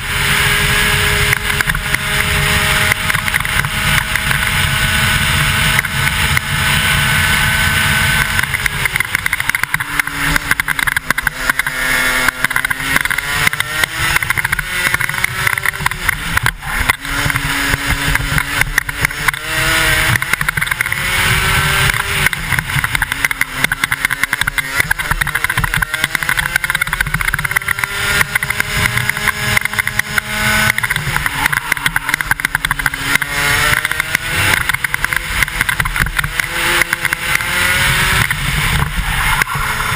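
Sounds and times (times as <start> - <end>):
two-stroke kart engine racing: 0.0 - 39.9.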